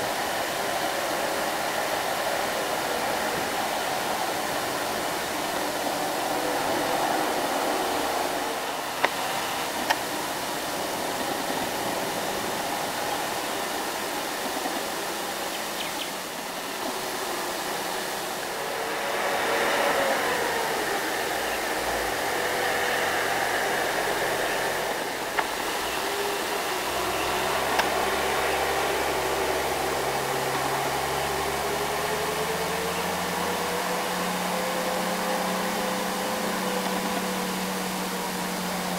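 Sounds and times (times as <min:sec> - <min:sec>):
steady hiss of passing trucks: 0:00.0 - 0:38.9
truck engine note: 0:16.6 - 0:38.9
deeper truck engine approaching: 0:16.8 - 0:38.9.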